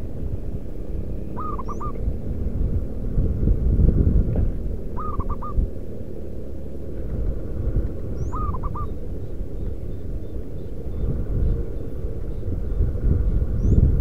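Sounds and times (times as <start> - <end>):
dove cooing: 1.3 - 2.2, 4.8 - 6.0, 8.0 - 12.5.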